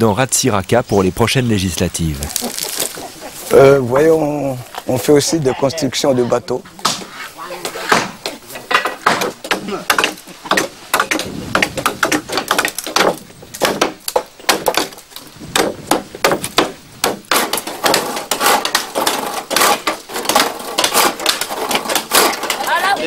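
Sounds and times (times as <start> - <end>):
hammer blows on wooden planks: 6.7 - 22.9.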